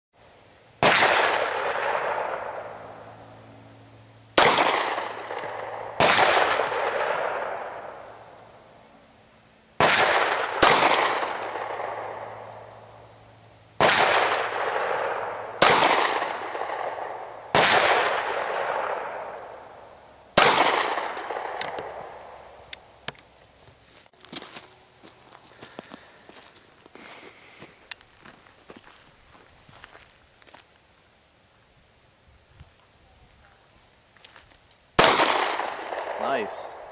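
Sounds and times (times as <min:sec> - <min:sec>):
pistol shots with long echo: 0:00.8 - 0:03.4, 0:04.4 - 0:08.6, 0:09.8 - 0:13.1, 0:13.8 - 0:22.6, 0:35.0 - 0:36.9.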